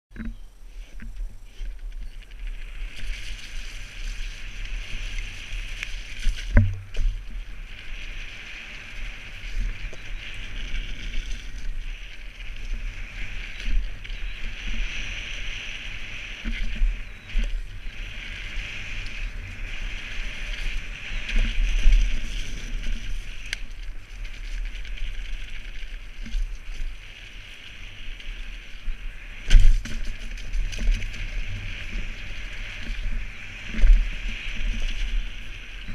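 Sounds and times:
bike rattling: 0.1 - 35.9
bike tyres rolling on muddy trail: 0.1 - 35.9
wind rumble on microphone: 0.1 - 35.9.

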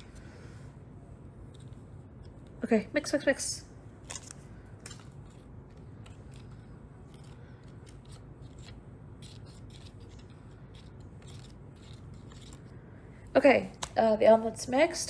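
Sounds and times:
plastic spoon stirring in tray: 4.0 - 12.8.

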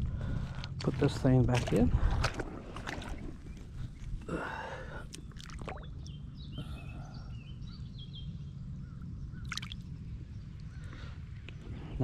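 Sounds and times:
birds chirping: 0.0 - 12.0
low outdoor rumble: 0.0 - 12.0
water splashes and drips: 0.8 - 3.8, 5.0 - 6.1, 9.4 - 9.8.

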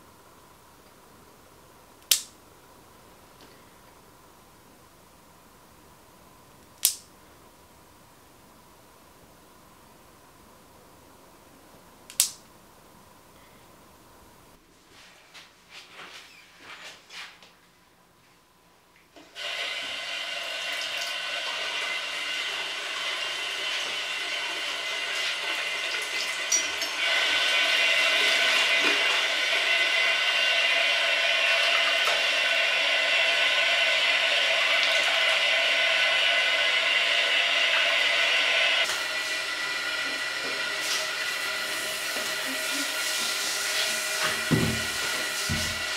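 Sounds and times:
tap water running into basin: 19.3 - 45.9.

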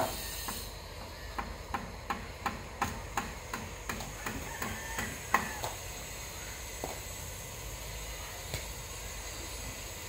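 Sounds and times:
hammering: 1.3 - 5.7.

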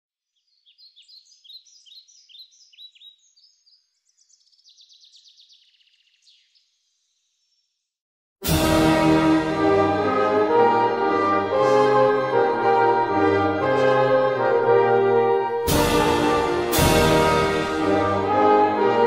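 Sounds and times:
songbird chirping and trilling: 0.2 - 8.0
orchestra playing: 8.4 - 19.0.

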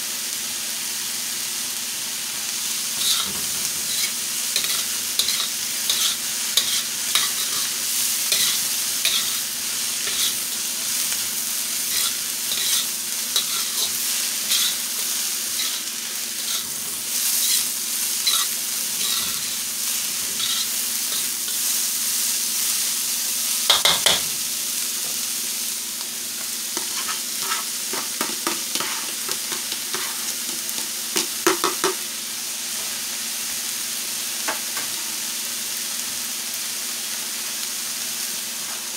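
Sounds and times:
vegetables sizzling in a wok: 0.0 - 38.9
metal ladle scraping a wok: 3.0 - 9.4, 10.0 - 10.4, 11.8 - 14.8, 15.5 - 21.6, 26.8 - 27.7.

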